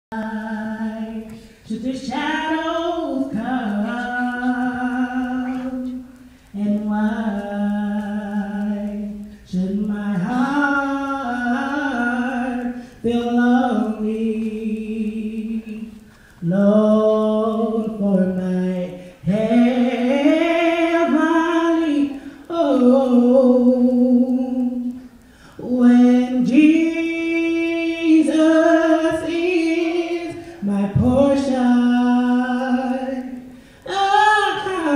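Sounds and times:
singer breathing: 16.0 - 16.4, 25.0 - 25.6, 33.5 - 33.9.

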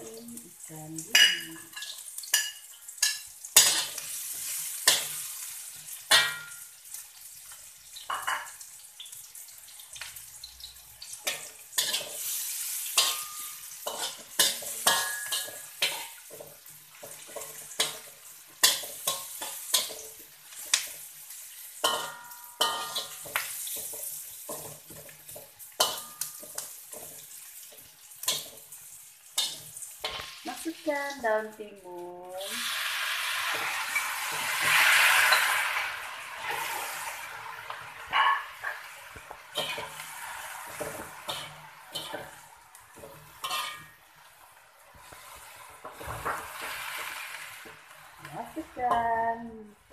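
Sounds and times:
food sizzling in hot oil: 0.0 - 49.9
spatula scraping a metal wok: 1.6 - 6.6, 11.2 - 28.7, 32.6 - 49.0.

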